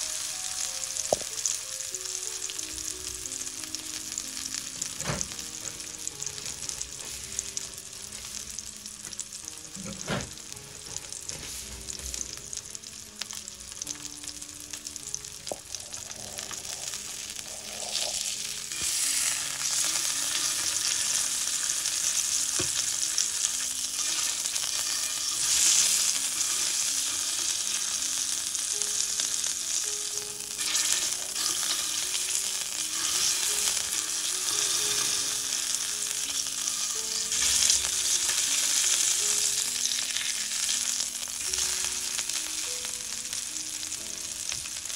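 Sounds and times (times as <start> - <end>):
steak sizzling in frying pan: 0.0 - 44.9.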